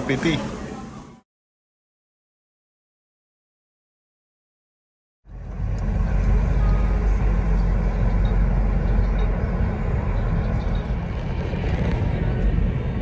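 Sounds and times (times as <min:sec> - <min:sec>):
car road and engine rumble: 0:00.0 - 0:01.2, 0:05.3 - 0:13.0.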